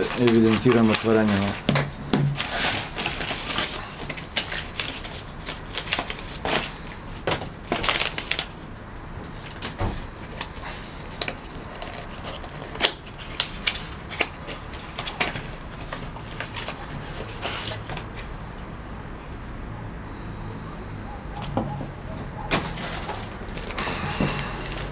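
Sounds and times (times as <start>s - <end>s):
paper wrapping rustling: 0.0s - 18.4s, 21.5s - 24.9s
cardboard box being opened: 22.5s - 23.8s.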